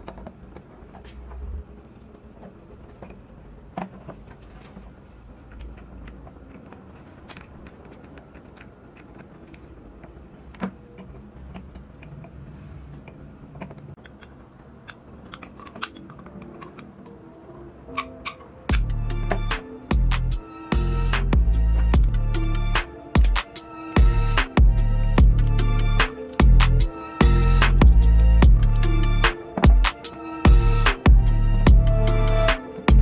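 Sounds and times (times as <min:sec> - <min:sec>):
toy truck parts clicking: 0:02.2 - 0:12.4, 0:13.0 - 0:17.3.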